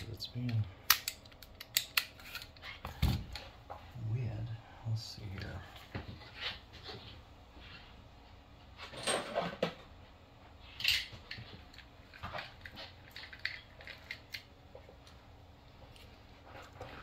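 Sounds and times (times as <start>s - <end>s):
small hard parts clicking and rattling: 10.8s - 15.2s.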